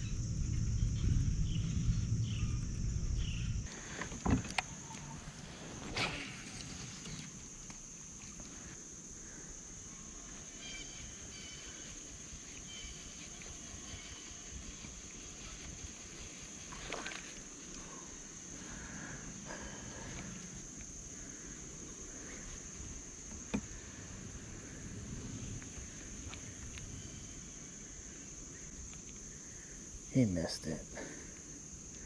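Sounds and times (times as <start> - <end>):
low rumble: 0.0 - 3.8
insects droning: 0.0 - 32.0.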